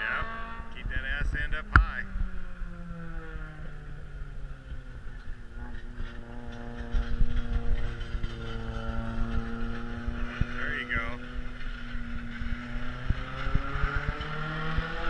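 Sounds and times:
stock car engines: 0.0s - 15.0s
wind rumble on microphone: 0.0s - 15.0s.

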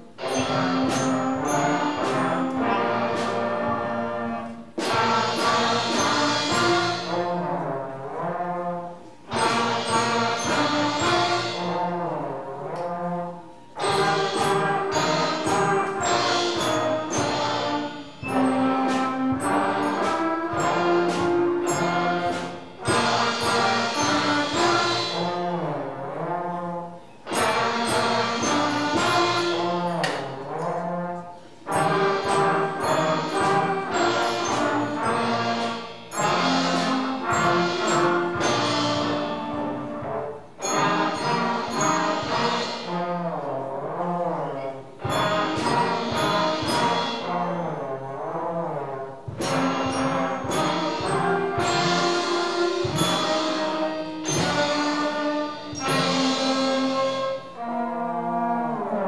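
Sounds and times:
brass band playing a tune: 0.0s - 59.0s.

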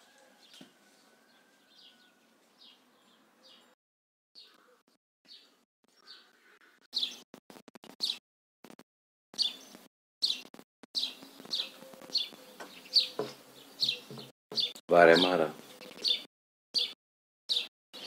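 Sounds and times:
small bird chirping: 4.4s - 7.2s, 8.0s - 8.2s, 9.4s - 14.8s, 15.6s - 18.0s.

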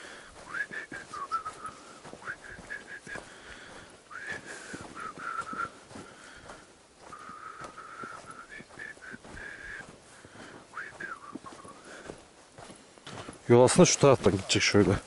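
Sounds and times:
footsteps on forest trail: 0.0s - 15.0s
person whistling a tune: 0.5s - 3.2s, 4.1s - 5.8s, 7.1s - 9.9s, 10.7s - 11.8s.

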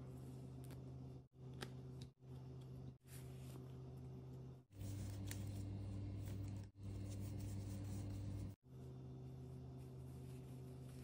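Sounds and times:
steady low hum: 0.0s - 11.0s
doll rubbing and rustling: 4.8s - 11.0s.

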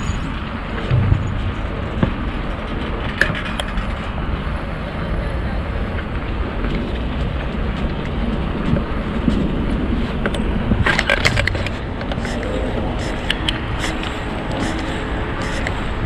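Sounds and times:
rushing wind and road noise: 0.0s - 16.0s.

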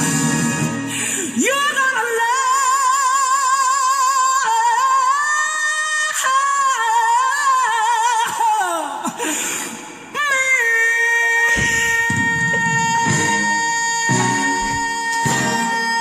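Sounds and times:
person singing high note with vibrato: 10.4s - 16.0s.

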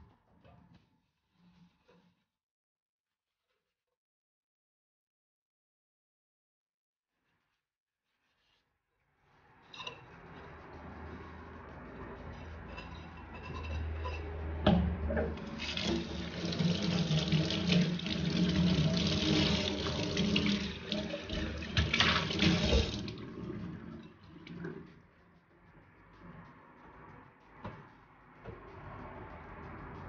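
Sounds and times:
tap water running into sink: 15.4s - 23.5s.

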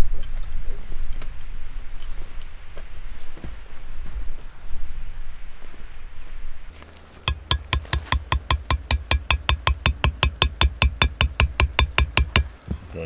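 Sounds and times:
hammer tapping metal tent peg: 7.3s - 12.5s.

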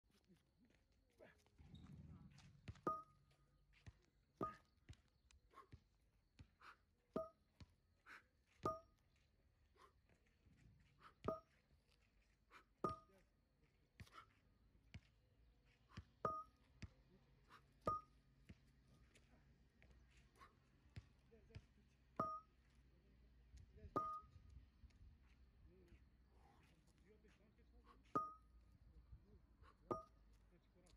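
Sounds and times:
dumbbells knocking on asphalt: 8.7s - 9.0s, 12.8s - 13.1s, 22.2s - 22.6s, 23.9s - 24.3s.

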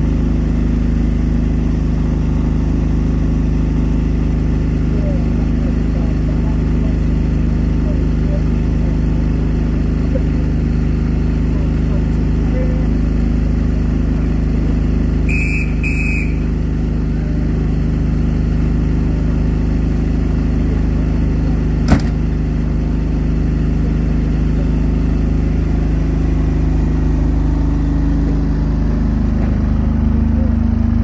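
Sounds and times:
diesel locomotive engine droning: 0.0s - 31.0s
whistle blasts: 15.3s - 16.5s
sharp knock: 21.9s - 22.2s.

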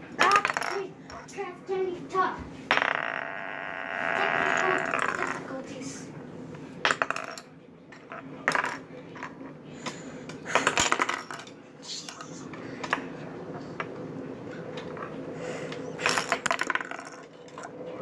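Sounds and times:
plastic toy pieces clattering on table: 0.2s - 1.3s, 4.1s - 5.6s, 6.9s - 9.4s, 10.5s - 13.0s, 16.0s - 17.8s.

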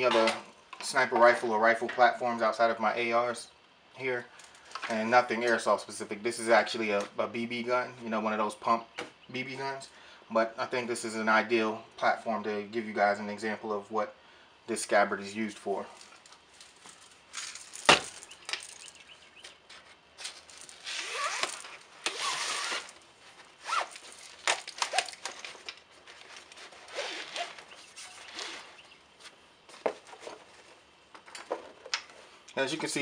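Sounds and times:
fabric rustling and scraping: 19.6s - 31.0s.

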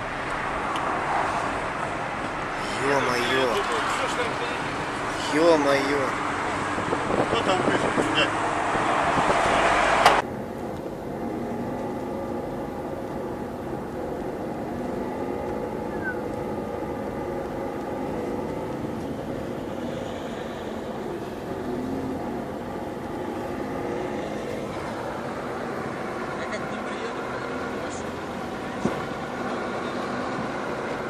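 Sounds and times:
car engine hum and road noise: 0.0s - 31.0s
loud rushing noise: 6.1s - 10.2s.

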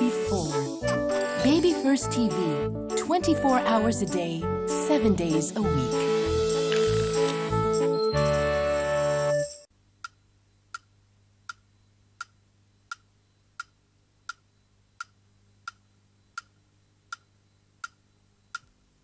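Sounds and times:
clock ticking: 0.9s - 5.8s, 15.0s - 16.5s, 17.1s - 18.7s.

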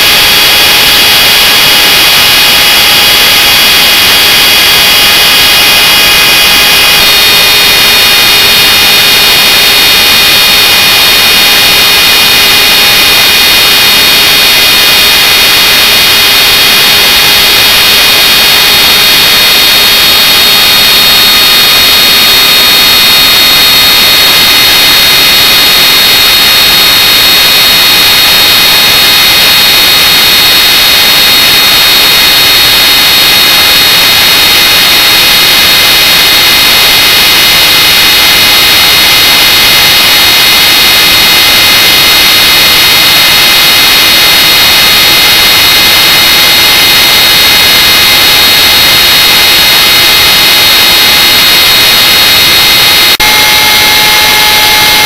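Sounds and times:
electric motor high whine: 52.5s - 55.0s.

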